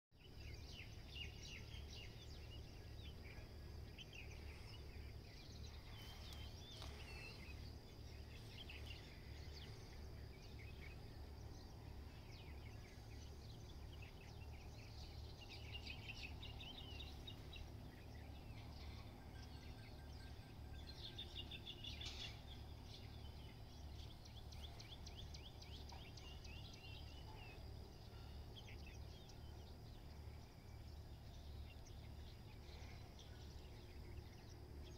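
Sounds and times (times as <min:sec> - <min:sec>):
birds chirping and twittering: 0:00.2 - 0:34.9.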